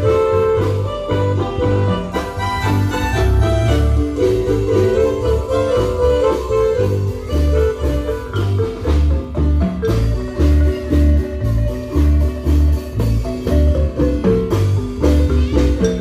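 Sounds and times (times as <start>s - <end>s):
marimba notes: 0.0s - 16.0s.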